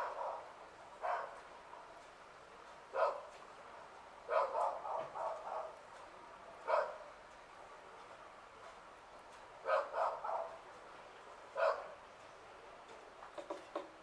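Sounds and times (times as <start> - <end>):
dog barking: 0.0 - 1.9, 2.9 - 3.4, 4.3 - 5.8, 6.6 - 7.0, 9.6 - 10.6, 11.6 - 12.0.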